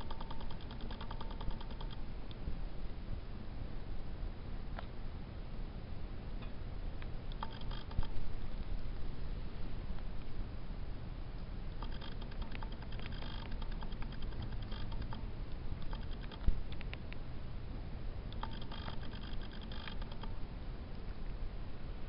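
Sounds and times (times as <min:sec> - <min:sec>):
dog mouth clicking and smacking: 0:00.0 - 0:02.0, 0:11.8 - 0:15.2, 0:15.8 - 0:17.0, 0:18.4 - 0:20.3.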